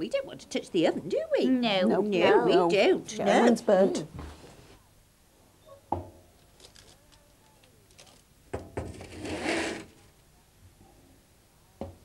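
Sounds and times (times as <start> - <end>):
metal tray scraping slide: 9.0 - 9.9.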